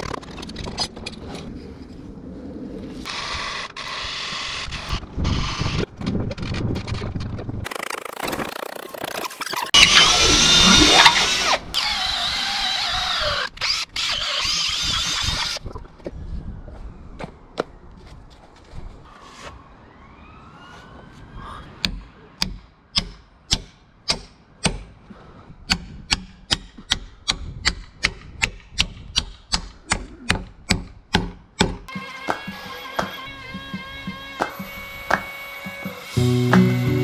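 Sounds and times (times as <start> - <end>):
cordless drill boring wood: 9.8 - 15.6
hammer striking wooden peg: 25.7 - 36.8.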